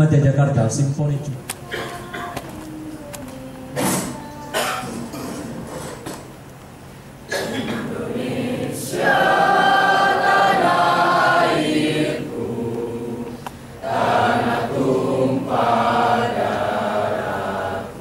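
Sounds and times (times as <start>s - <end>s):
choir singing: 7.4s - 18.0s.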